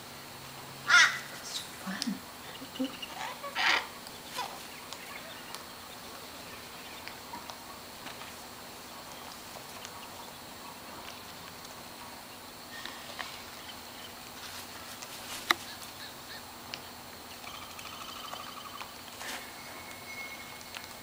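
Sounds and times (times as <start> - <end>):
faint steady hum: 0.0 - 21.0
soft rasping bird call: 0.9 - 1.7, 2.4 - 7.5
birds tapping at shoes: 2.0 - 21.0.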